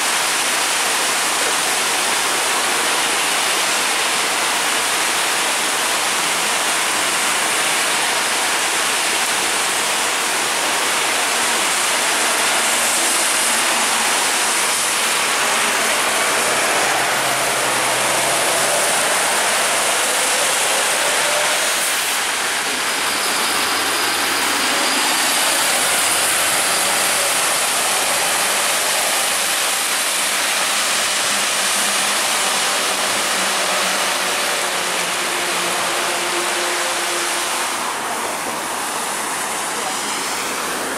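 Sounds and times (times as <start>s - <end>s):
heavy rain hissing: 0.0s - 40.9s
tyres spraying through water: 0.0s - 40.9s
bus engine passing: 9.8s - 29.2s.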